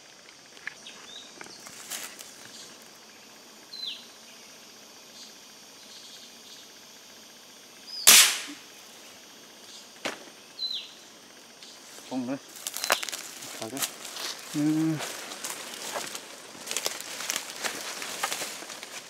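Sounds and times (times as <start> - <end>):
bird chirping: 2.4 - 4.5, 9.6 - 11.9, 12.7 - 13.2
rifle shot: 8.1 - 8.6.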